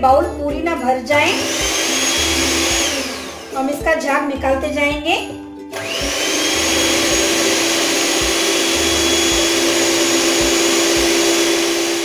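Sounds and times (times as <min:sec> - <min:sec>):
electric hand mixer whirring: 0:01.2 - 0:04.3, 0:05.7 - 0:12.0.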